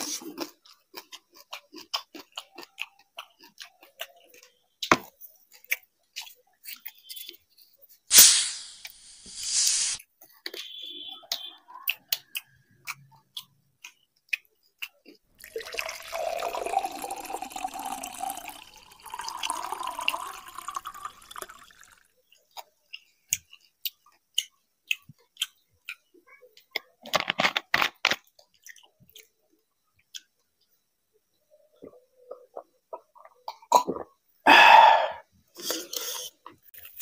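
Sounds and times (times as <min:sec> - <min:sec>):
soda pouring into glass: 0:15.3 - 0:22.1.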